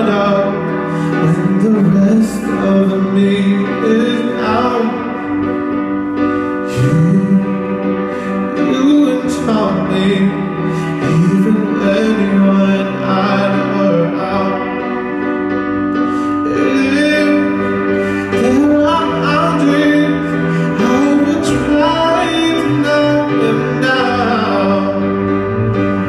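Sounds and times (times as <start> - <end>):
cello: 0.0 - 26.0
guitar: 0.0 - 26.0
man singing: 0.0 - 26.0.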